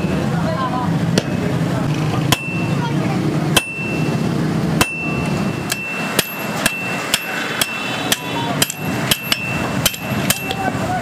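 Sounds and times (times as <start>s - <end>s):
anvil ringing: 2.3s - 10.8s
hammer blows on anvil: 3.5s - 10.7s.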